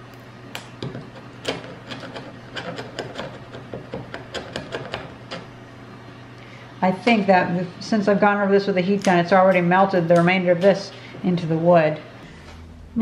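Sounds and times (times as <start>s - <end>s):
chisel scraping paint off wood: 0.8s - 5.5s.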